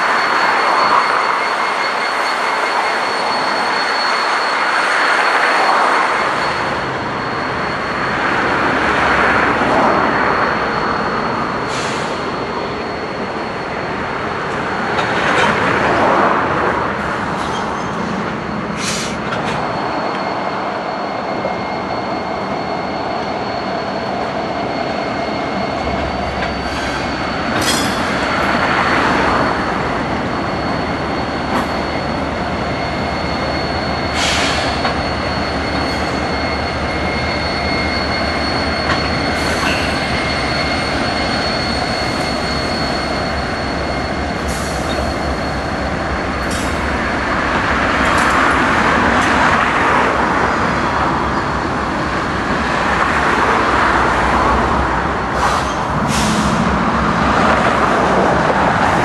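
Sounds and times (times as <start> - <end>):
wheels clanking on track: 0.0 - 20.6, 24.4 - 59.0
diesel locomotive engine rumble: 0.0 - 59.0
high-pitched wheel squeal: 0.0 - 59.0.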